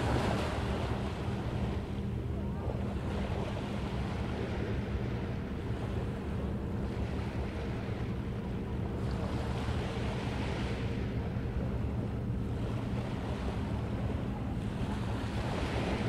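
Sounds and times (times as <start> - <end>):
ocean surf washing onto beach: 0.0 - 5.3
low steady hum: 0.0 - 16.0
wind rumbling on microphone: 0.0 - 16.0.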